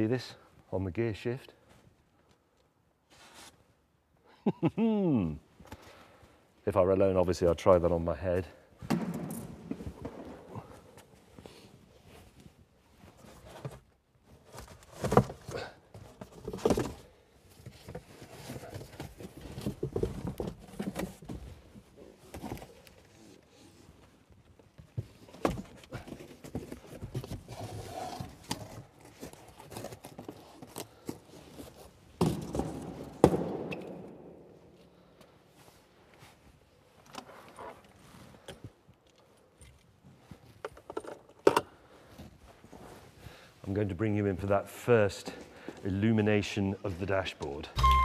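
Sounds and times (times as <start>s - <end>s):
cardboard packaging rustling: 25.1s - 32.9s.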